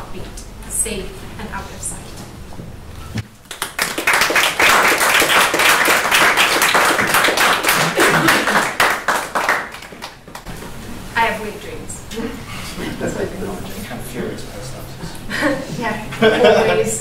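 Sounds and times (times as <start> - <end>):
audience applauding: 3.4 - 10.5.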